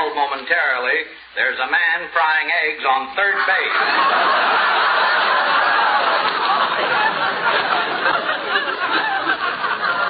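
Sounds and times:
audience laughing loudly: 0:03.2 - 0:10.0.

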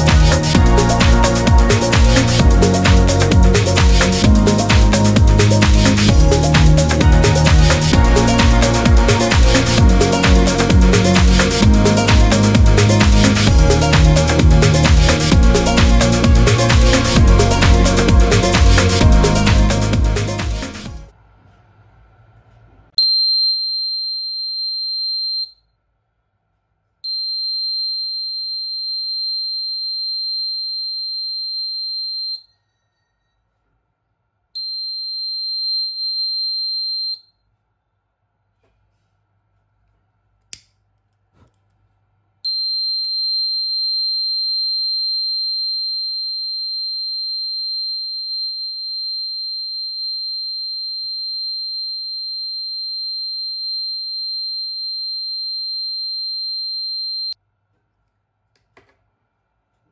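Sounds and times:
piezo buzzer high-pitched tone: 0:00.0 - 0:20.7, 0:42.5 - 0:57.4.

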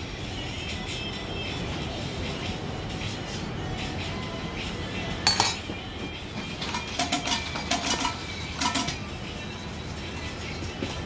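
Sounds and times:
background music: 0:00.0 - 0:11.0
metal utensils clinking on griddle: 0:05.2 - 0:05.7, 0:06.5 - 0:09.8.

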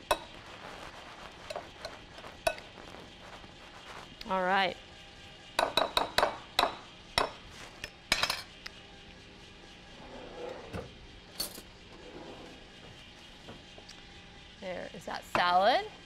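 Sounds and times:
spoon scraping bowl: 0:00.0 - 0:04.4.

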